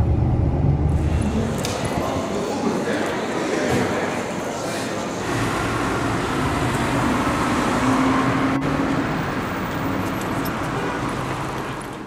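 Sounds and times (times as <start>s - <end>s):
engine hum: 0.0s - 2.4s, 5.2s - 12.0s
road traffic rumble: 0.0s - 12.0s.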